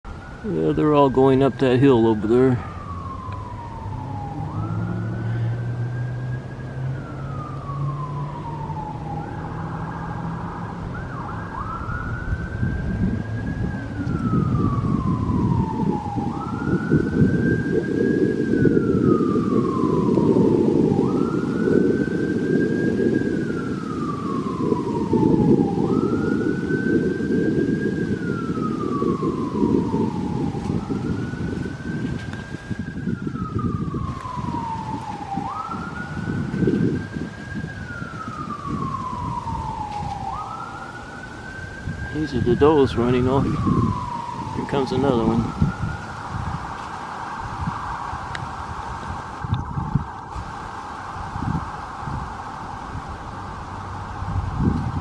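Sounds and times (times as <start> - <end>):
emergency vehicle siren wailing: 0.0 - 55.0
low rushing noise: 0.0 - 55.0.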